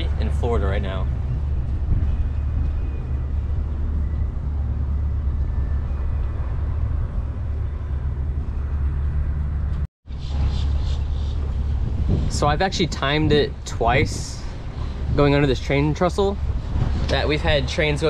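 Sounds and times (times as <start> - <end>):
outboard motor droning: 0.0 - 18.0.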